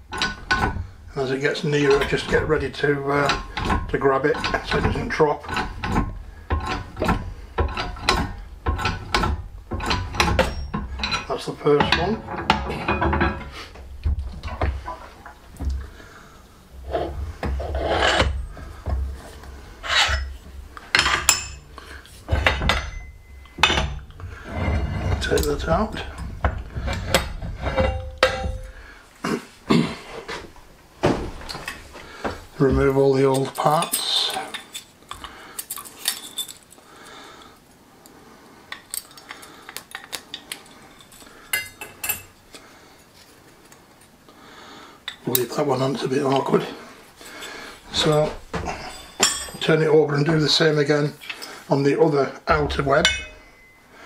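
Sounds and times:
metal-on-metal scrapes: 0.0 - 13.8, 16.8 - 28.9
metal parts clinking: 1.8 - 13.6, 19.8 - 24.3, 25.1 - 28.8, 33.2 - 36.8, 47.9 - 49.6, 52.7 - 53.8.

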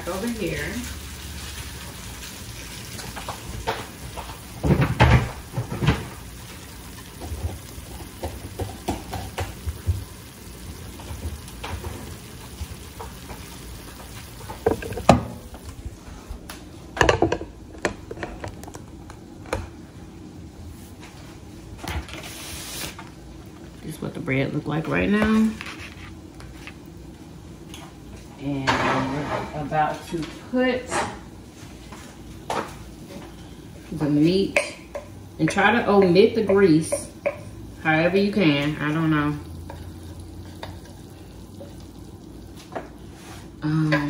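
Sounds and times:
food sizzling in a skillet: 0.0 - 15.7, 33.4 - 44.0
cookware knocking and clattering: 14.5 - 15.4, 17.0 - 18.6, 34.5 - 37.5.

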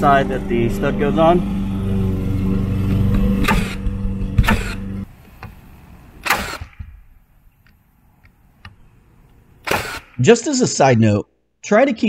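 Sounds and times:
motor hum: 0.0 - 7.8
nail gun firing: 3.4 - 4.8, 6.2 - 7.0, 9.6 - 10.2.

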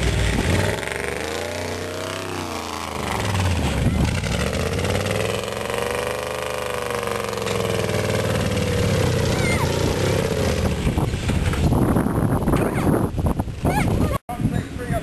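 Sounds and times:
car engine revving: 0.0 - 11.7.

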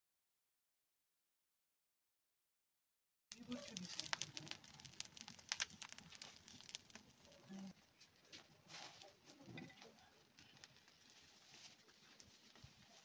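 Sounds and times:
burning straw crackling: 3.3 - 13.0.

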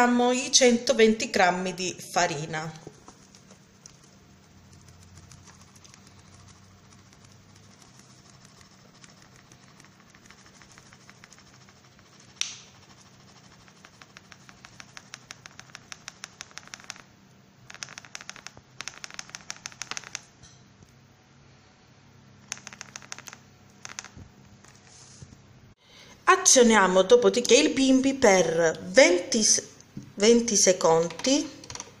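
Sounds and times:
faint low hum: 0.0 - 32.0
flour pouring crackling ticks: 3.0 - 17.0.

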